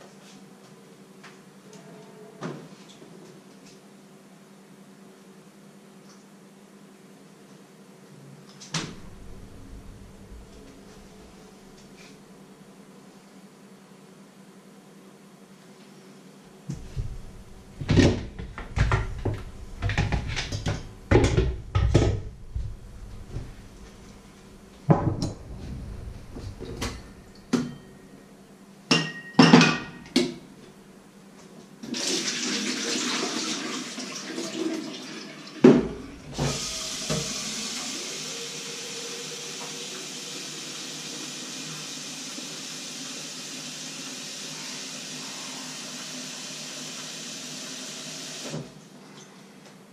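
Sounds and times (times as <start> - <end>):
tap water filling a kettle: 31.8 - 48.7.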